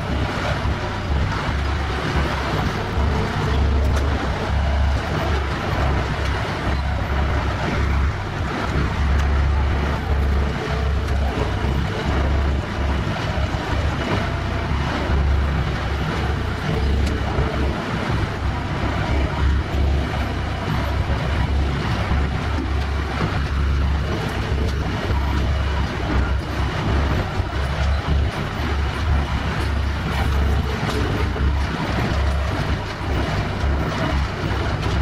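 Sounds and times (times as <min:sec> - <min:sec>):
heavy machinery deep rumble: 0:00.0 - 0:35.0.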